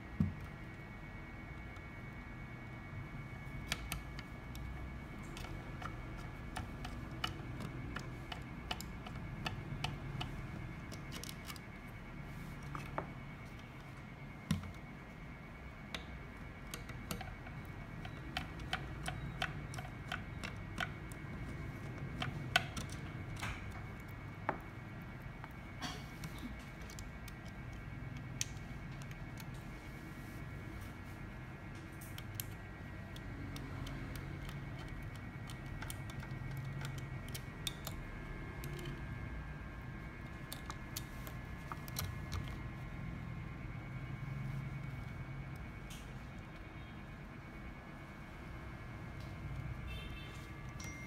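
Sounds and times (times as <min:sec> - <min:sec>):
faint steady hum: 0:00.0 - 0:51.0
hex key clicking and scraping: 0:03.1 - 0:15.0, 0:15.8 - 0:29.6, 0:31.8 - 0:43.1.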